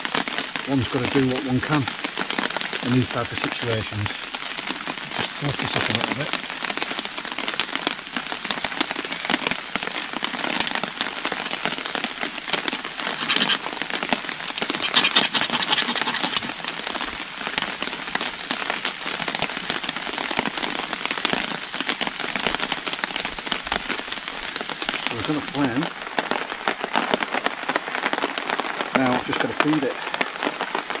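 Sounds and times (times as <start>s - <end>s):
heavy rain on leaves: 0.0s - 31.0s.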